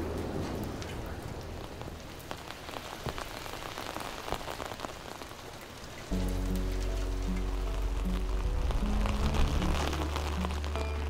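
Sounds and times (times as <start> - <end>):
rain drops hitting: 0.0 - 11.0
low hum: 6.2 - 11.0.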